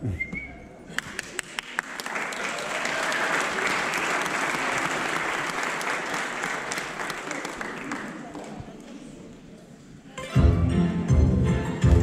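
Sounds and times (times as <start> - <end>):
audience applause: 0.9 - 8.6.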